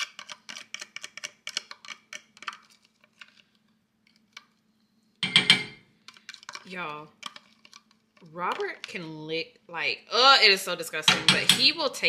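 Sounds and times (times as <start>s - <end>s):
glass bowl clatter: 5.2s - 5.8s.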